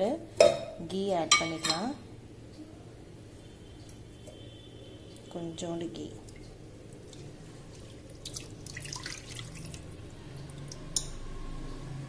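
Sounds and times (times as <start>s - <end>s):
water sloshing and dripping: 2.5s - 11.9s.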